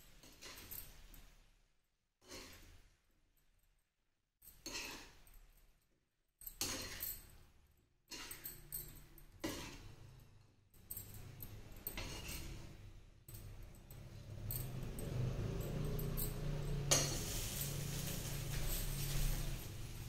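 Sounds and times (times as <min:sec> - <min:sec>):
ladle scraping in a pot: 0:04.6 - 0:05.2, 0:11.9 - 0:12.7.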